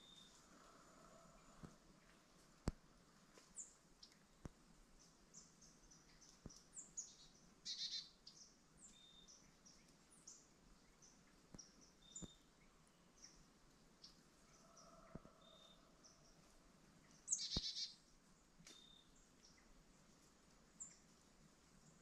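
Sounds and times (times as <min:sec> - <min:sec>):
small birds chirping: 0:03.4 - 0:19.8.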